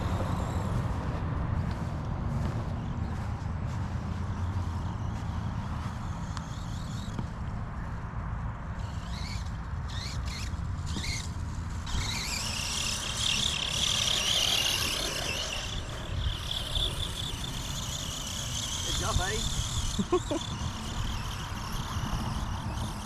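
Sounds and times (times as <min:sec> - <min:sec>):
electric motor whining: 0:08.8 - 0:23.0.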